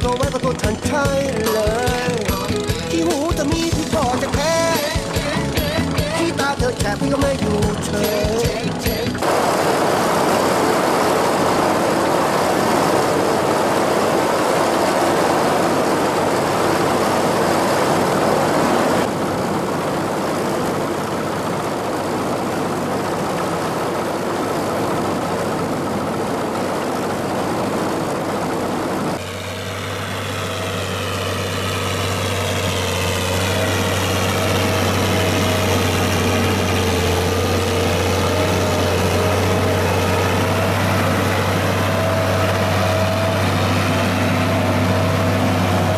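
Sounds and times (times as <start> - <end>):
tractor engines running: 0.0 - 45.9
low drone with higher tone: 29.2 - 45.9.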